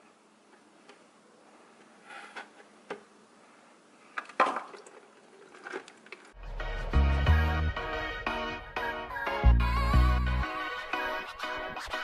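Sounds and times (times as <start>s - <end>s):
background music: 6.4s - 12.0s.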